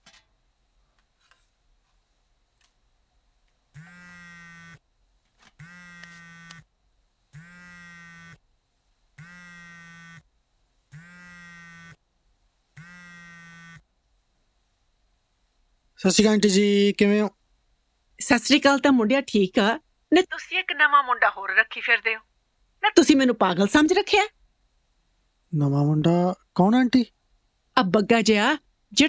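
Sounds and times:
mobile phone buzzing: 3.8s - 4.8s, 5.6s - 6.7s, 7.3s - 8.4s, 9.2s - 10.3s, 10.9s - 12.0s, 12.8s - 13.8s.

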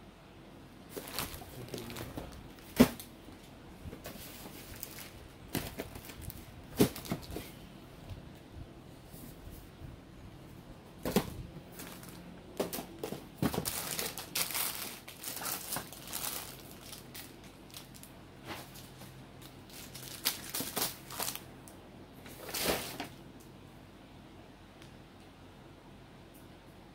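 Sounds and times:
plastic wrappers crinkling: 0.9s - 3.1s, 4.0s - 7.4s, 11.1s - 21.5s.

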